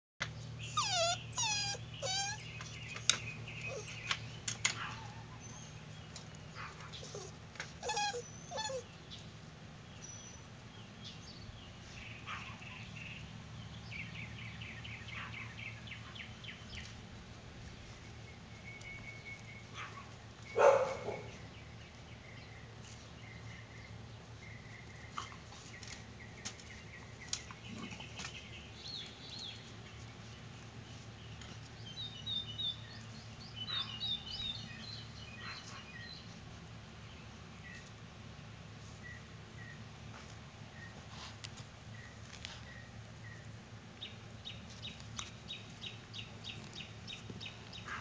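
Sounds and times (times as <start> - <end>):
puppies whining and yelping: 0.6 - 4.1, 7.0 - 8.9.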